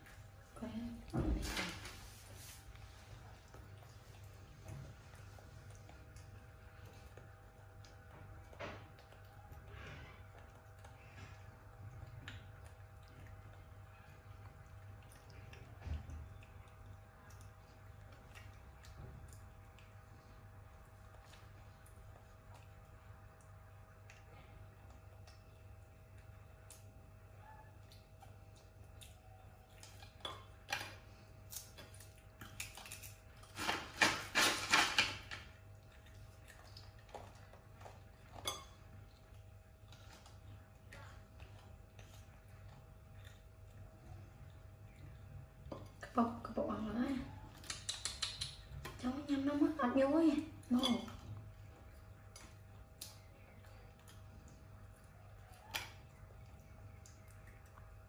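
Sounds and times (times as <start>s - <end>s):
steady low hum: 0.0s - 34.4s.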